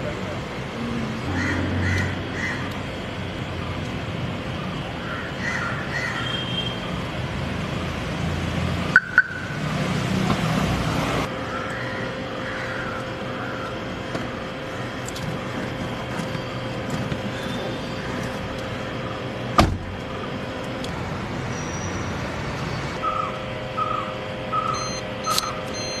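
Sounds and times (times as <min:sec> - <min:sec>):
crow cawing: 0:01.3 - 0:02.8, 0:05.0 - 0:06.4, 0:11.4 - 0:13.9.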